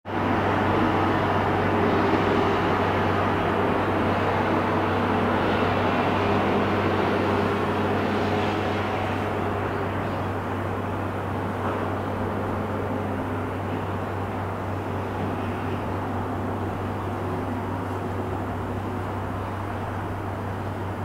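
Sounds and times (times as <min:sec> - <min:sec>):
steady rushing drone: 0:00.1 - 0:21.0.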